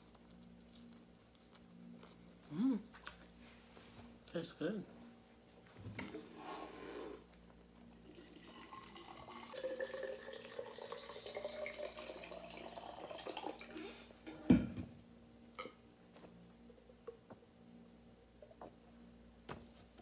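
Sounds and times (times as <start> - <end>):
drink pouring into cup: 7.9 - 13.8.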